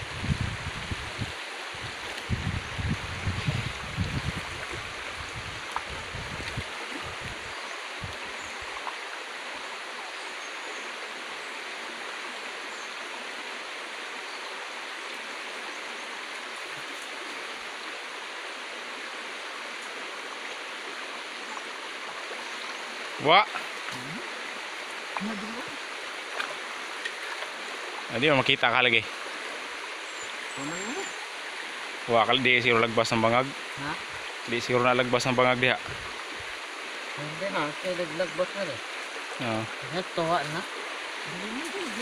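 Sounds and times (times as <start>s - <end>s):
water rushing over rocks: 0.0s - 42.0s.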